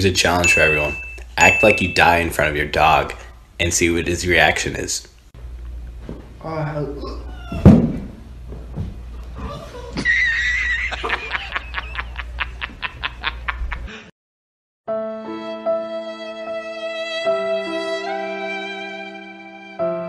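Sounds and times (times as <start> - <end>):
thump: 7.5 - 9.0
sad violin music: 14.9 - 20.0.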